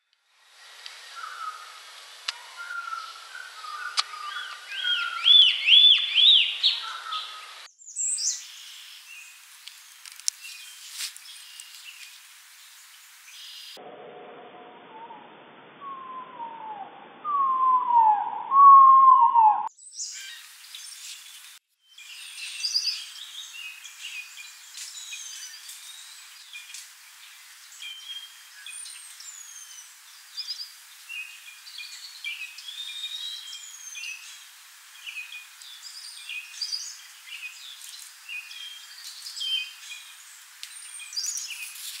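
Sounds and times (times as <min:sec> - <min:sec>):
slurred bird whistles: 0:15.8 - 0:20.3.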